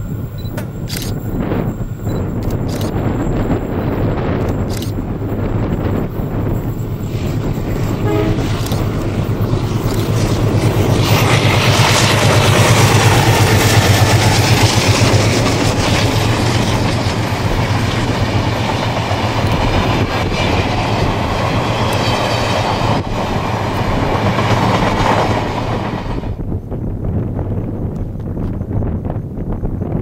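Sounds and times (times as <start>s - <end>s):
diesel locomotive drone: 0.0s - 30.0s
wind noise: 0.0s - 30.0s
train wheels clattering over rails: 4.3s - 26.4s.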